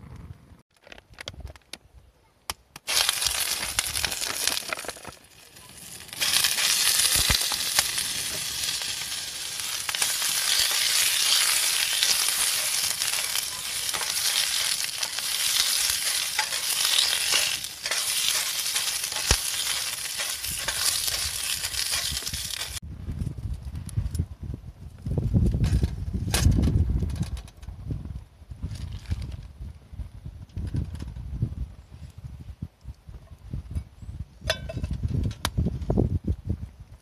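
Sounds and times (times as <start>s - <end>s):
sausages sizzling in a pan: 2.9s - 4.8s, 5.5s - 22.8s.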